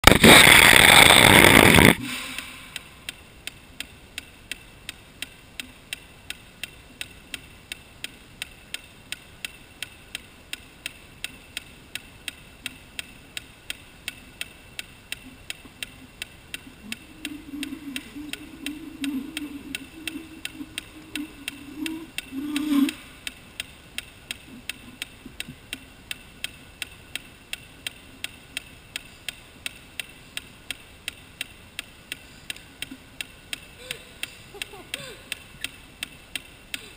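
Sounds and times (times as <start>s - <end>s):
steady ticking: 0.0s - 36.9s
low wavering hum: 16.6s - 23.2s.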